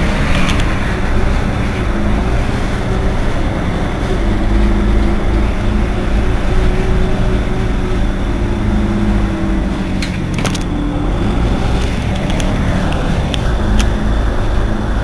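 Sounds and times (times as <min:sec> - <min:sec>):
bus engine idling: 0:00.0 - 0:15.0.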